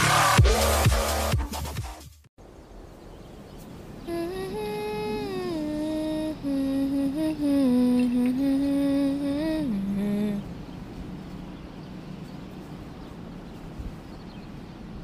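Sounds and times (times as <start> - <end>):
person humming a slow melody: 4.0 - 10.6.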